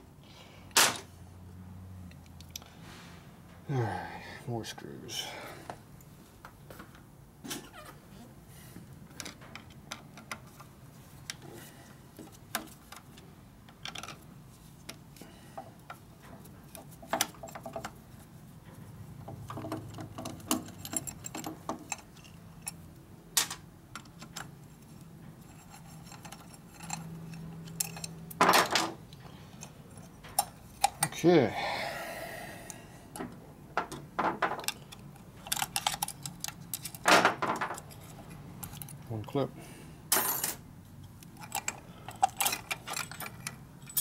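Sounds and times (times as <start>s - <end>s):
screwdriver and screws clinking: 19.8s - 22.8s, 25.5s - 28.2s, 34.6s - 37.1s, 41.4s - 44.0s.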